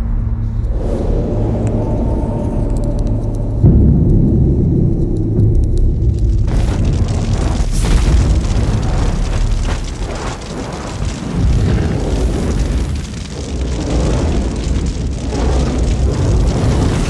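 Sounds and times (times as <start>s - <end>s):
fire crackling: 0.7s - 17.0s
wildfire rushing roar: 5.8s - 17.0s.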